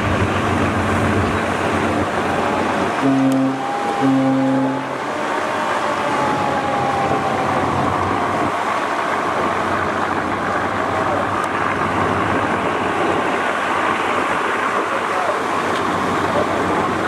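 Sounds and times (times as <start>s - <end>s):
boat engine noise: 0.0s - 17.0s
churning water: 0.0s - 17.0s
long tone dropping in pitch: 2.0s - 8.8s.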